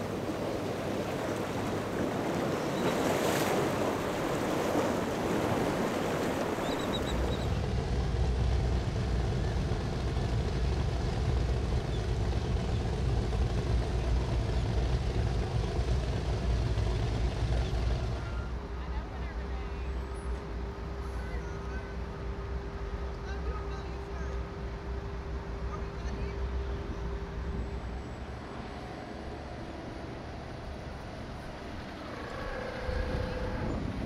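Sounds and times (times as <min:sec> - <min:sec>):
surf rushing: 0:00.0 - 0:18.3
powerboat engines rumbling: 0:00.0 - 0:34.0.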